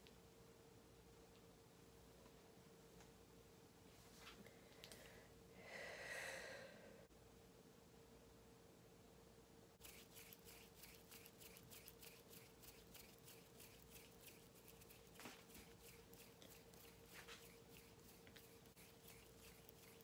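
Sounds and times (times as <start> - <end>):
faint steady hum: 0.0 - 20.0
fingers rubbing and flicking: 9.8 - 20.0.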